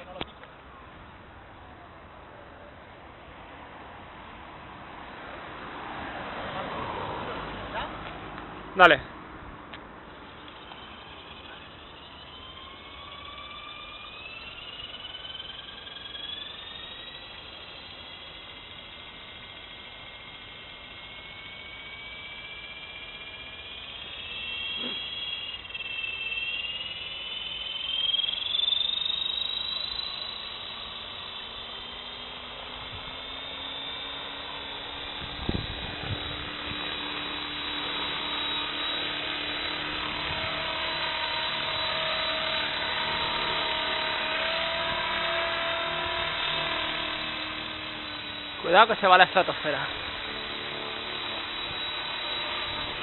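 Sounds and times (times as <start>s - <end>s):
rc helicopter motor whine: 0.0s - 53.0s.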